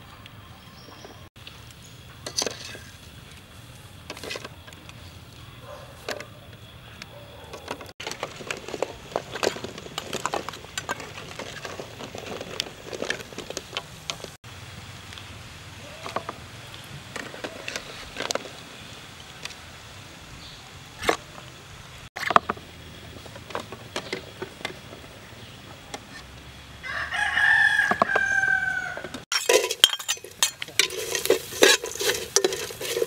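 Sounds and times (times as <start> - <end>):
metal ladle clinking and scraping: 2.2 - 3.0, 29.3 - 33.0.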